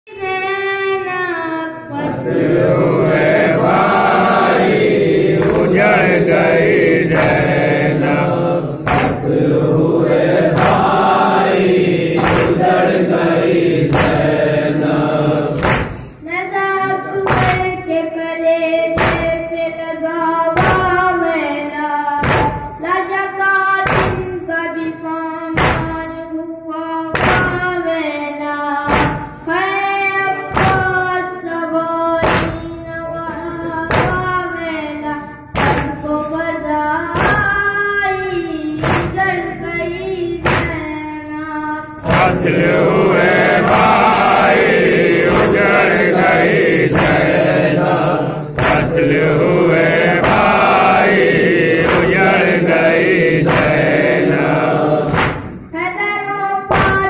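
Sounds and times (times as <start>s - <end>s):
boy singing through microphone: 0.1s - 2.4s, 15.5s - 57.0s
group of voices singing lament: 0.2s - 57.0s
chest beating thumps: 35.6s - 36.2s, 38.8s - 39.6s, 42.0s - 55.8s.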